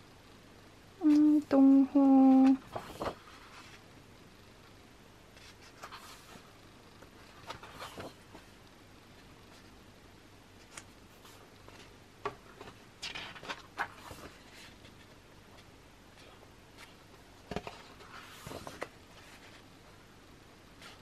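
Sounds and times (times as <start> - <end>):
paper rustling: 2.0 - 3.8, 5.3 - 6.5, 7.1 - 8.6, 10.6 - 15.2, 16.2 - 19.7
pages of a book turning: 2.4 - 3.8, 5.4 - 6.5, 7.2 - 8.5, 12.5 - 15.1, 16.8 - 19.7.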